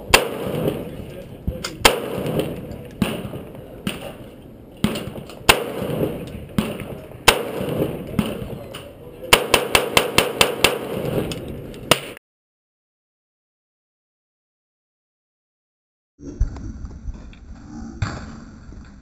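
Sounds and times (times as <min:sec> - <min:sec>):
rifle shots echoing: 0:00.0 - 0:12.2.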